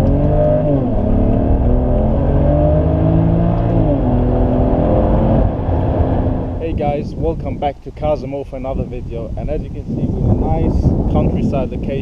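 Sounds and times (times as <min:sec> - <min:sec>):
car engine accelerating hard: 0:00.0 - 0:06.7.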